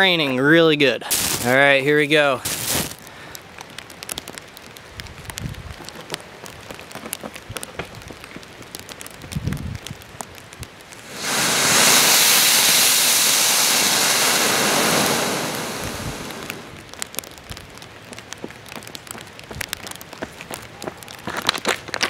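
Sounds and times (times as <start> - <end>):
rain pattering: 1.0 - 22.0
rocket motor rushing hiss: 11.0 - 16.8.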